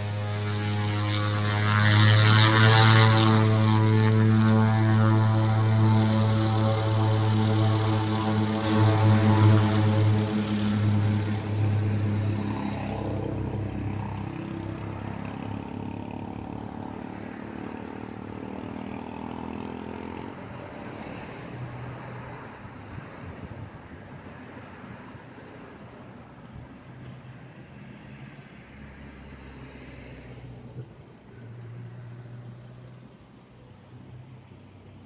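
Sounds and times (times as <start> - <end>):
turboprop engine drone: 0.0 - 27.8.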